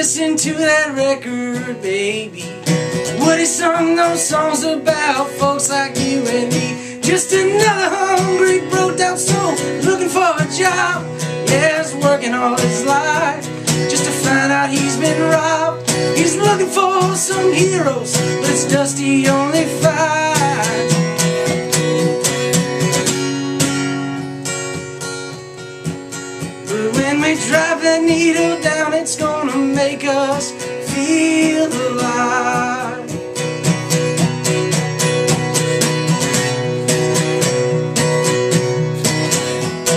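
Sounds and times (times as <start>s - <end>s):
man singing: 0.0s - 21.4s, 26.6s - 33.4s
strummed acoustic guitar: 0.0s - 39.9s.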